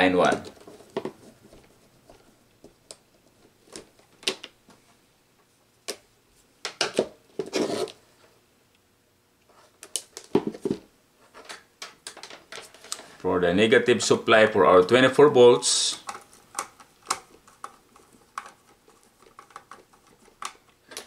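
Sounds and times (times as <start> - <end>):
rustling scrape: 7.4 - 8.3
tools and wire clicking and tapping: 15.8 - 21.0.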